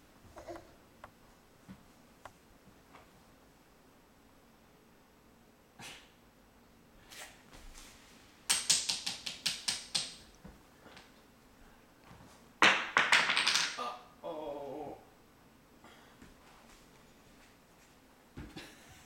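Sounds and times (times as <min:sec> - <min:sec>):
wavering voice: 0:13.8 - 0:15.1.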